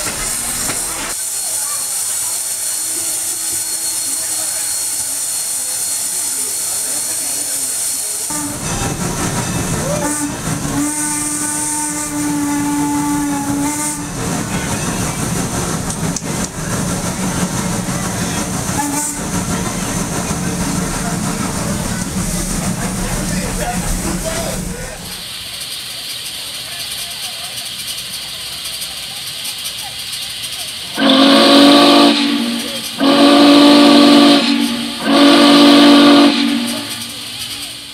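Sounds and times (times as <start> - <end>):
train rumble and hiss: 0.0 - 37.9
steam whistle blowing: 2.8 - 6.0, 9.8 - 14.2, 31.0 - 37.3.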